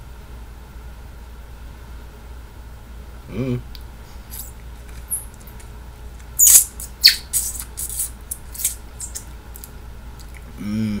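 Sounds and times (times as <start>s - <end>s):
person sucking juice from lime: 6.4s - 9.3s.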